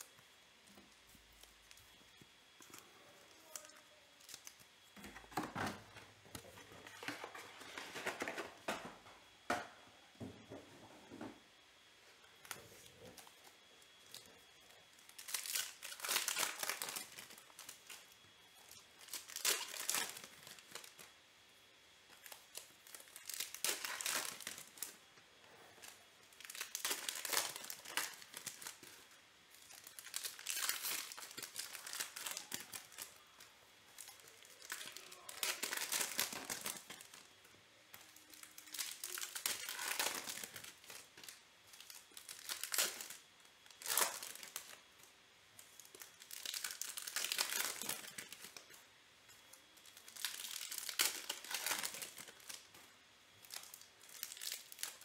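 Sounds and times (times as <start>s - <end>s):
foil wrappers tearing and crinkling: 1.3s - 5.5s, 12.4s - 21.2s, 22.1s - 25.1s, 25.8s - 37.3s, 37.9s - 48.8s, 49.8s - 52.8s, 53.4s - 55.0s.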